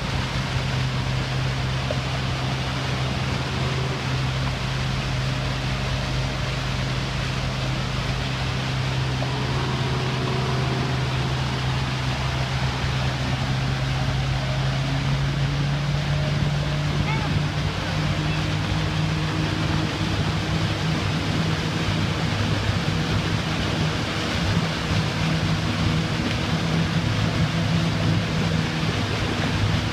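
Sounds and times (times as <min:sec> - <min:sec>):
outboard motor running: 0:00.0 - 0:29.9.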